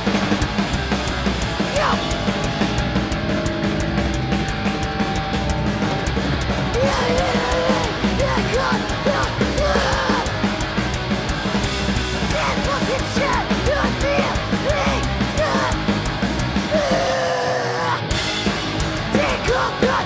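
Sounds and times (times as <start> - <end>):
punk band playing live: 0.0 - 20.0
singer yelling into microphone: 6.8 - 10.3, 12.3 - 15.8, 16.7 - 18.1, 19.1 - 20.0.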